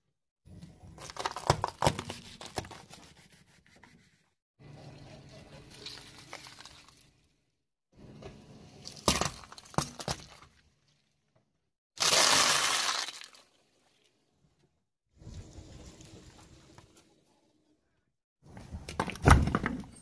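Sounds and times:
tyre crushing potatoes: 0:00.9 - 0:02.9.

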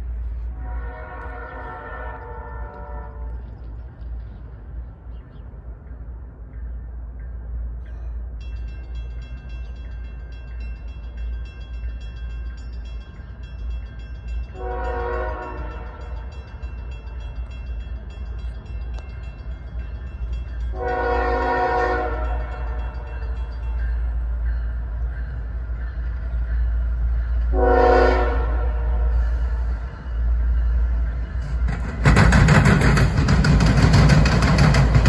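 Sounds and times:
locomotive air horn blasts: 0:00.5 - 0:03.4, 0:14.5 - 0:16.3, 0:20.7 - 0:22.8, 0:27.5 - 0:29.8.

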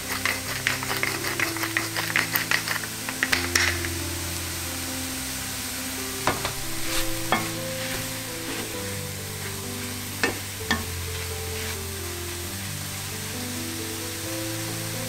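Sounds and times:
food frying: 0:00.0 - 0:15.0
spatula scraping food in pan: 0:06.6 - 0:11.9.

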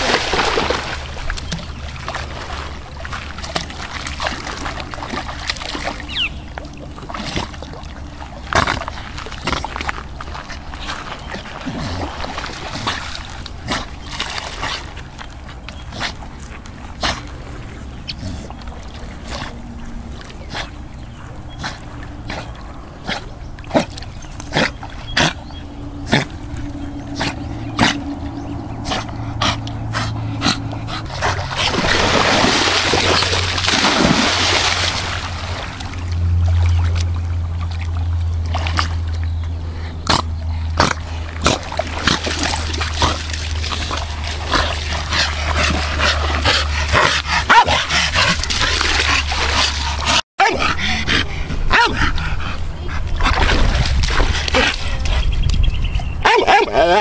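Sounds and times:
rush of water: 0:00.0 - 0:14.8, 0:31.0 - 0:39.0
dog splashing in water: 0:00.0 - 0:15.1, 0:31.0 - 0:39.2, 0:40.8 - 0:50.1, 0:53.2 - 0:55.3
low rumble: 0:00.0 - 0:56.2.

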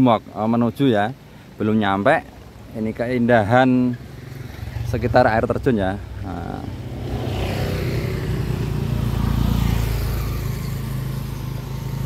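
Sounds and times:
vehicle engine passing: 0:02.6 - 0:12.0.

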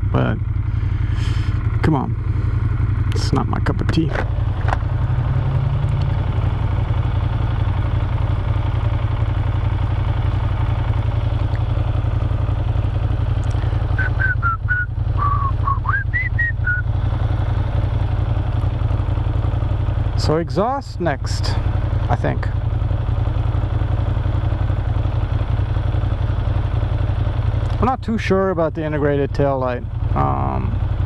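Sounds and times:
wind and road noise: 0:00.0 - 0:14.2
motorcycle engine cruising: 0:00.0 - 0:31.0
high whistled notes: 0:14.0 - 0:16.9.

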